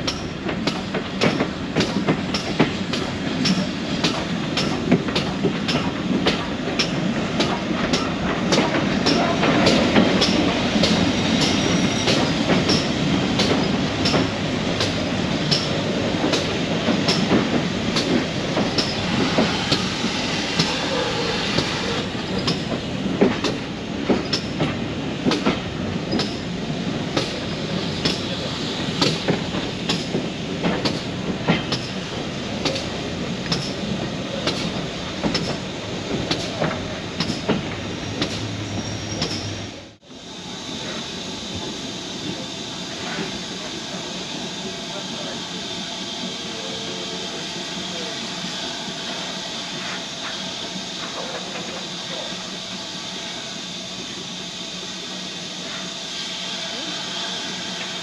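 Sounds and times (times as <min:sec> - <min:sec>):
rail joint clicks: 0:00.0 - 0:39.8, 0:49.7 - 0:52.6
train wheels rumbling on rails: 0:00.0 - 0:58.0.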